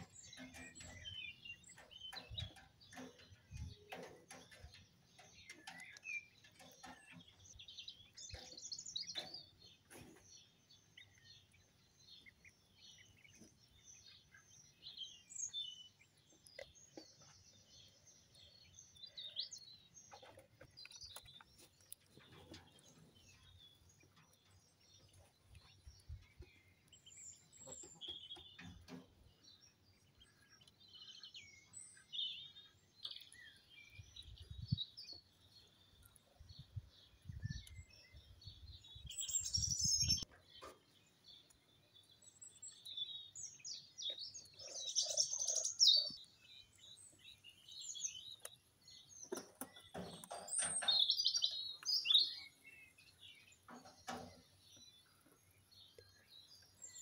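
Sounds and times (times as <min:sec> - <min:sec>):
quail chirping: 0:43.5 - 0:46.4.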